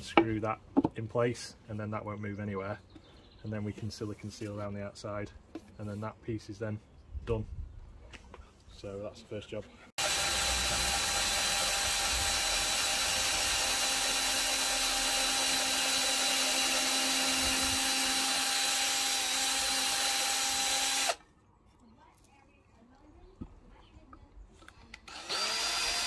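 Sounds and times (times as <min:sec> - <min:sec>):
cordless drill boring into wood: 0:10.0 - 0:21.2, 0:25.0 - 0:26.0.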